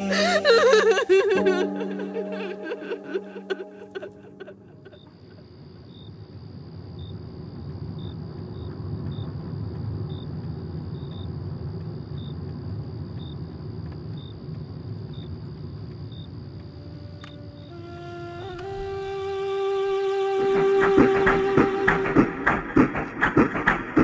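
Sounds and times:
thin high tone: 0.0 - 5.0
cricket chirping: 0.0 - 24.0.

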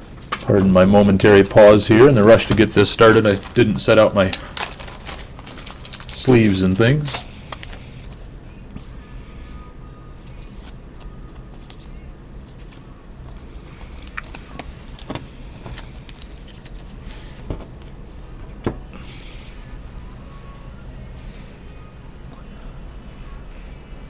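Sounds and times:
plastic sleeves crinkling: 0.6 - 8.2, 13.4 - 17.5.

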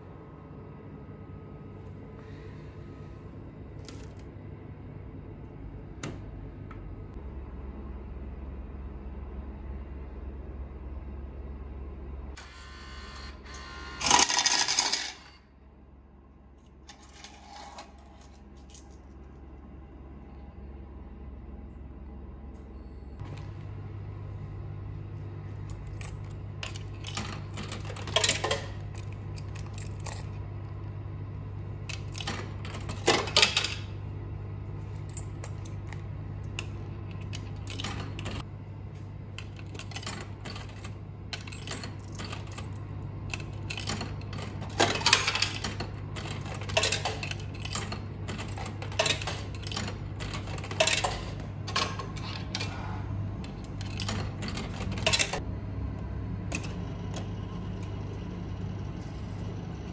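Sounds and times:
low hum: 0.0 - 13.9
coins clinking in a coin slot: 13.4 - 15.5, 16.6 - 19.1, 25.6 - 30.4, 31.8 - 34.0, 34.9 - 38.5, 39.4 - 52.8, 53.4 - 55.4.

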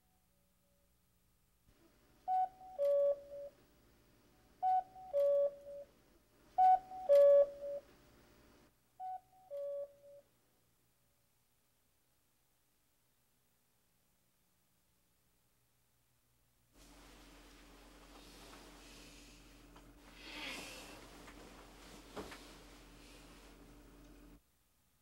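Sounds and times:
cuckoo clock calling: 2.3 - 3.6, 4.6 - 5.9, 6.6 - 7.8, 9.0 - 10.2.

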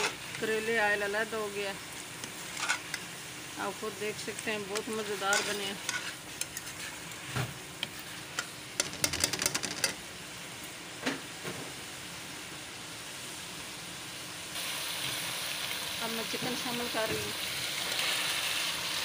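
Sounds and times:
metal spatula scraping a wok: 0.0 - 0.5, 2.4 - 3.0, 4.3 - 10.0
oil sizzling: 0.0 - 19.0.

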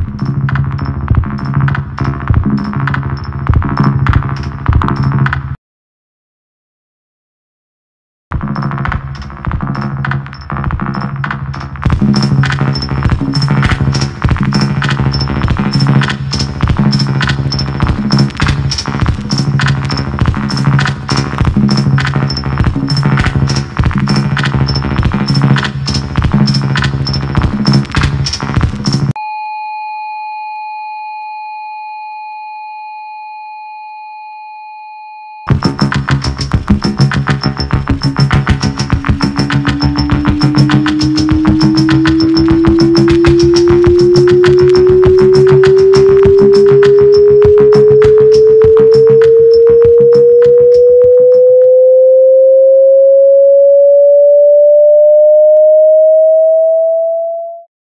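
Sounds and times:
electronic music beat: 0.0 - 5.5, 8.3 - 29.2, 35.5 - 52.4
high electronic tone: 35.5 - 57.7.

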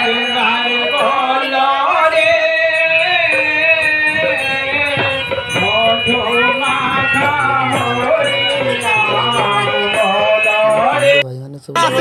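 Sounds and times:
rattling percussion: 0.0 - 11.2
drum: 3.0 - 11.2
person singing a chanting melody: 5.6 - 12.0.

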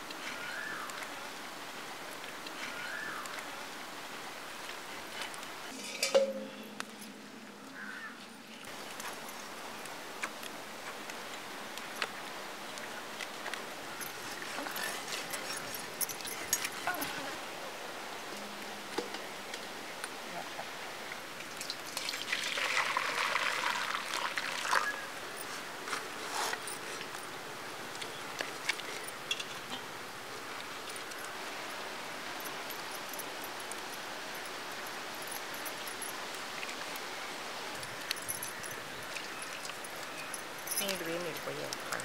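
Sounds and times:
steady background hiss: 0.0 - 42.0
water splashing in a steel bowl: 21.5 - 25.1.

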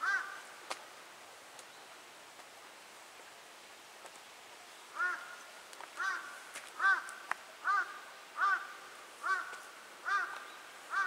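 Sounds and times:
crow cawing: 0.0 - 0.4, 5.0 - 5.4, 6.0 - 11.0.

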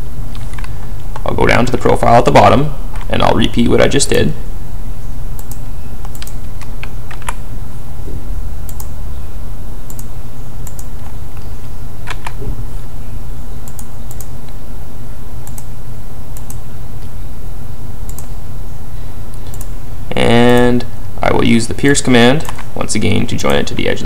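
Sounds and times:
low electrical hum: 0.0 - 24.0
computer mouse clicks: 5.4 - 7.4, 8.7 - 8.9, 9.9 - 11.5, 13.6 - 14.6, 15.4 - 15.7, 16.4 - 17.1, 18.1 - 18.3, 19.3 - 19.7, 22.4 - 22.7.

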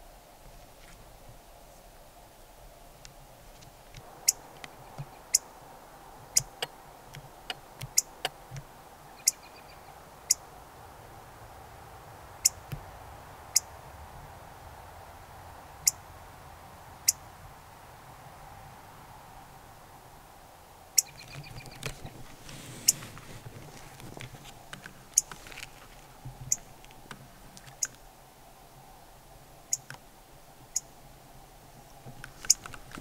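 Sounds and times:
chipmunk chip calls: 4.0 - 5.6, 6.2 - 10.5, 12.4 - 12.8, 13.5 - 13.7, 15.8 - 16.1, 20.9 - 23.2, 24.1 - 25.5, 26.4 - 27.0, 27.6 - 28.0, 29.6 - 30.1, 30.7 - 31.0, 31.8 - 33.0.

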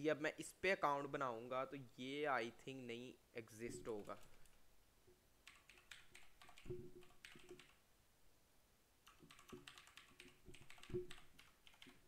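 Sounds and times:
faint keyboard typing: 3.7 - 4.6, 5.4 - 7.8, 9.0 - 12.0.

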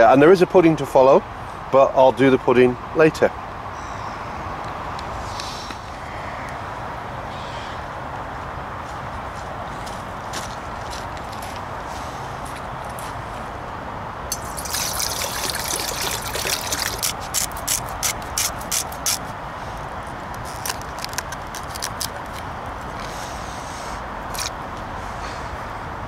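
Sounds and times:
water pouring into metal pot: 14.3 - 17.1.

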